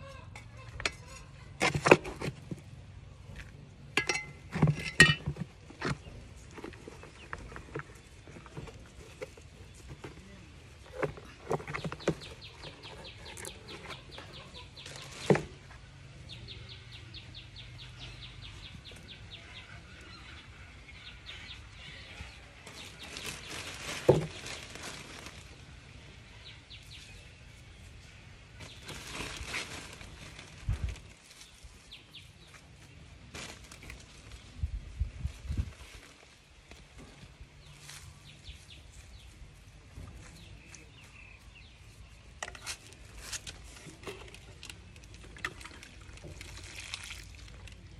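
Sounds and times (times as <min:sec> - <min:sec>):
low thuds of pot handled: 0:03.9 - 0:06.7.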